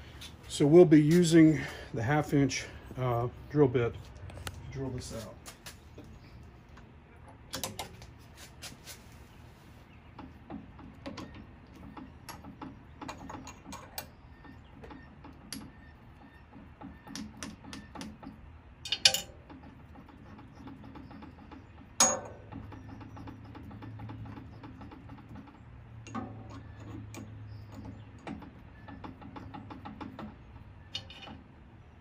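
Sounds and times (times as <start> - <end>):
sharp metal knocks: 14.8 - 31.5.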